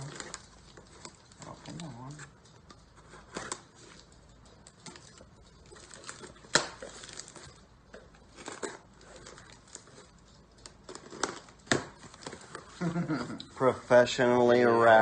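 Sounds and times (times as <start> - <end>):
tape and cardboard tearing: 5.8 - 7.5, 10.9 - 13.0.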